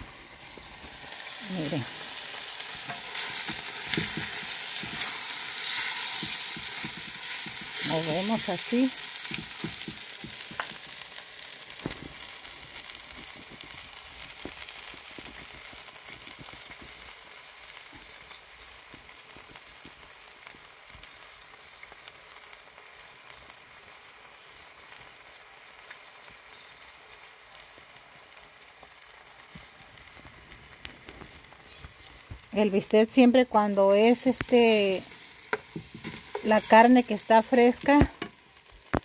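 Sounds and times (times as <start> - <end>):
meat sizzling in oil: 0.0 - 39.0
small oil pops: 2.9 - 7.9, 9.2 - 10.8, 11.8 - 17.1.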